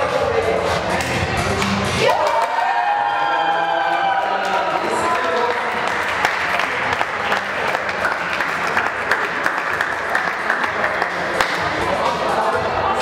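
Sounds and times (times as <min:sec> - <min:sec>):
crowd applauding: 0:02.0 - 0:11.8.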